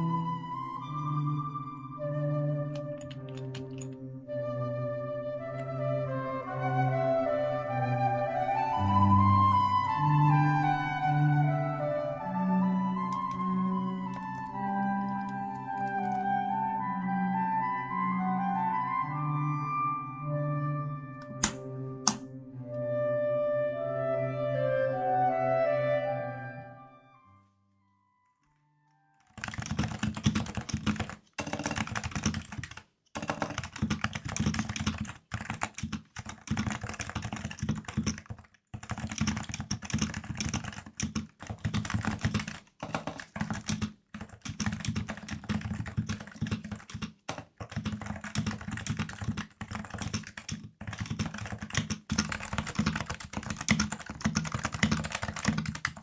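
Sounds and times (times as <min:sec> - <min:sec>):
keyboard typing: 0:02.7 - 0:04.0, 0:13.0 - 0:16.3, 0:21.2 - 0:22.3, 0:29.2 - 0:56.0.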